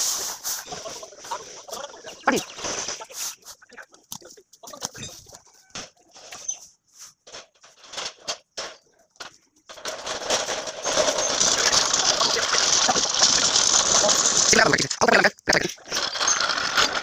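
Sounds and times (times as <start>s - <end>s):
metal stand scraping on dirt: 0.0s - 3.8s, 9.7s - 14.8s, 15.8s - 17.0s
chickens clucking: 0.0s - 6.7s
birds chirping: 0.5s - 6.8s.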